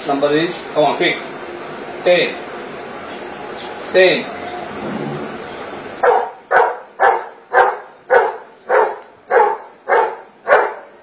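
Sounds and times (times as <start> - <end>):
dog barking: 6.0 - 11.0.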